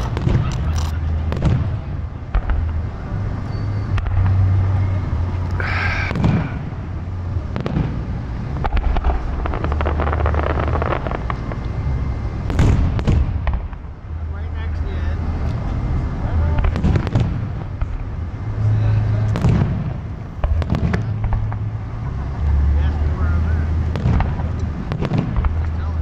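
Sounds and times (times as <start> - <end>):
fireworks booming: 0.0 - 15.4, 16.0 - 23.0, 23.6 - 26.0
fireworks crackling: 0.0 - 26.0
high-pitched whistle: 3.5 - 4.0.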